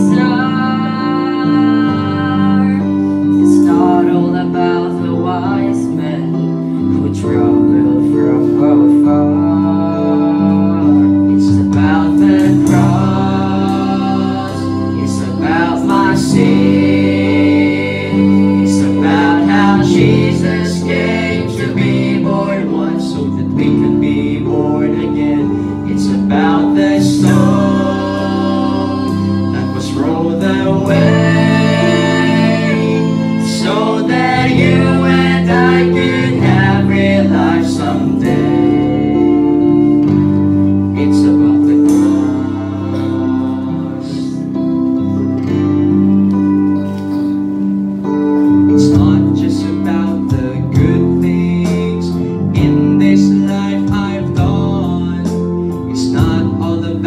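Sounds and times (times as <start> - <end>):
voices singing together: 0.0 - 45.7
worship band playing: 0.0 - 57.0.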